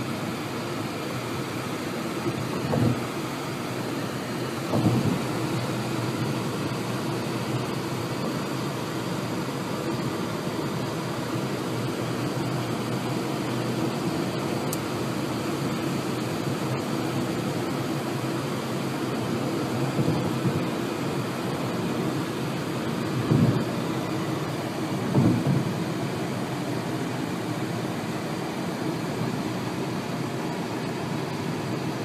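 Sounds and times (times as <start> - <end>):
car road and engine rumble: 0.0 - 32.0
brief thump: 4.7 - 5.2.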